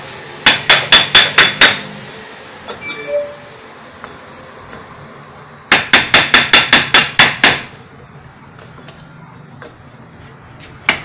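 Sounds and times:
hammer striking metal: 0.4 - 1.9, 5.7 - 7.8.

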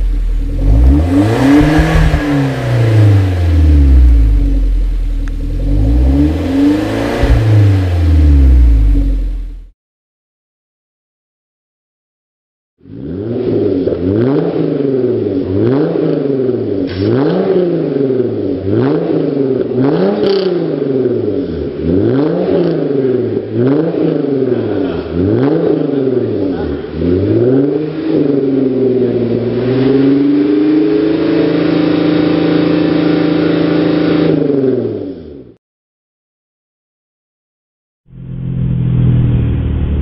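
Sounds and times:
car engine revving: 0.0 - 9.7, 12.8 - 35.5, 38.1 - 40.0.

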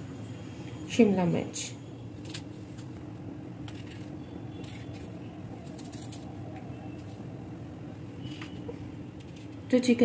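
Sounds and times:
low background hum: 0.0 - 10.0
knife slicing peppers: 3.6 - 7.2.

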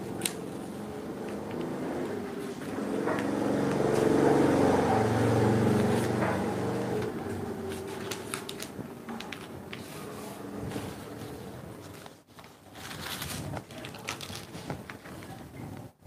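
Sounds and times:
vehicle engine passing by: 0.3 - 8.4.

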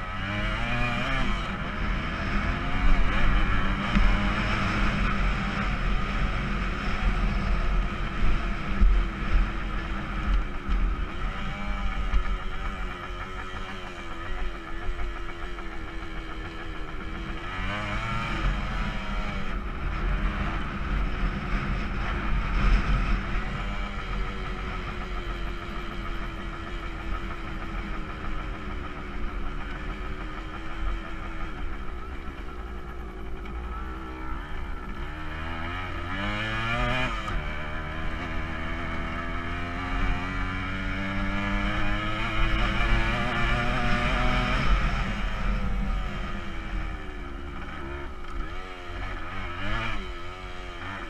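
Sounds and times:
motorcycle engine revving: 0.0 - 51.0.

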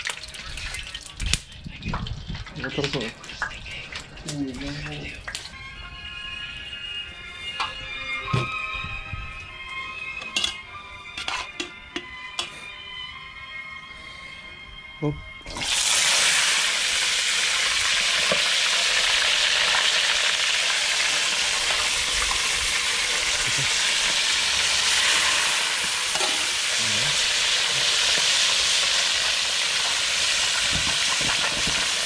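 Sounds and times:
fish sizzling in hot oil: 15.5 - 32.0.

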